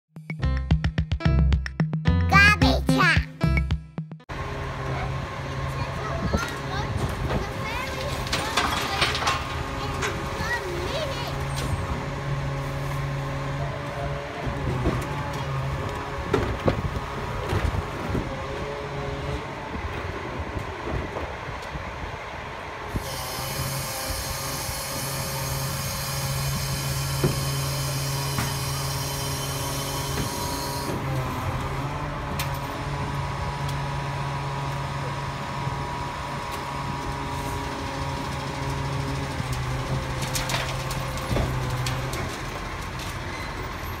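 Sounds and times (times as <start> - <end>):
hydraulic hissing whine: 22.9 - 31.0.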